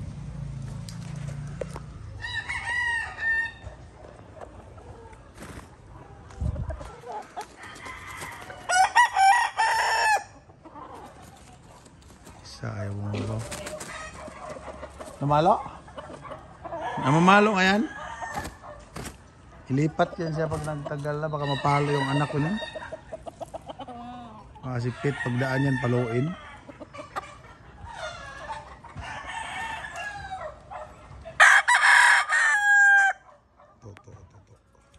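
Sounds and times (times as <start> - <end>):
roosters crowing: 0.0 - 33.8
hens clucking: 1.2 - 34.9
rooster crowing: 1.4 - 3.8, 7.5 - 10.4, 16.7 - 18.8, 21.2 - 23.0, 24.8 - 26.7, 28.0 - 30.6, 31.4 - 33.4.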